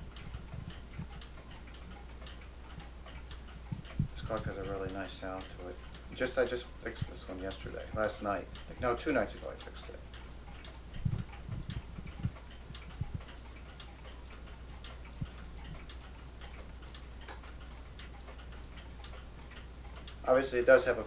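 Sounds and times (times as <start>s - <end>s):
clock ticking: 0.0s - 21.0s
low thumps: 11.0s - 12.4s, 13.0s - 13.3s.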